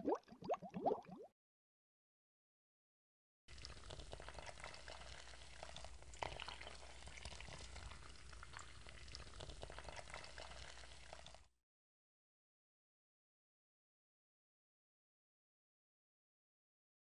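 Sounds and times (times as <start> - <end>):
coffee pouring into glass mug: 3.5 - 11.5.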